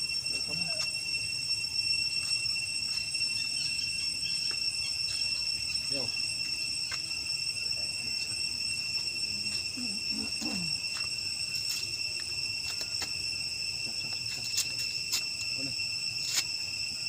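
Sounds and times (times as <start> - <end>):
high-pitched insect chorus: 0.0 - 17.0.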